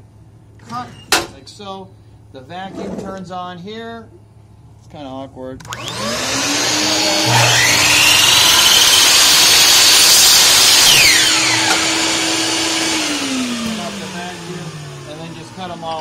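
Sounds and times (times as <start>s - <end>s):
shop vacuum running: 5.7s - 16.0s
miter saw cutting wood: 5.8s - 16.0s.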